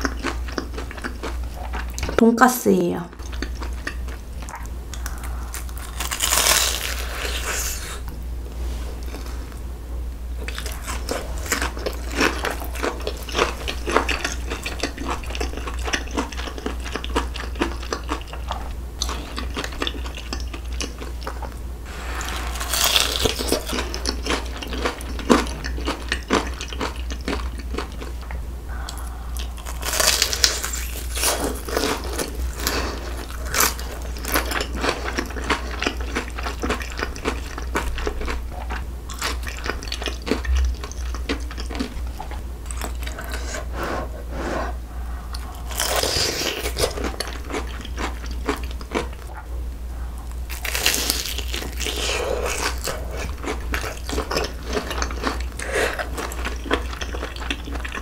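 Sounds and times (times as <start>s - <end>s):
low hum: 3.1s - 15.8s, 20.6s - 35.4s, 37.8s - 47.4s, 48.7s - 53.4s
crunchy biting and chewing: 3.2s - 8.1s, 10.4s - 43.8s, 45.3s - 49.5s, 50.2s - 58.0s.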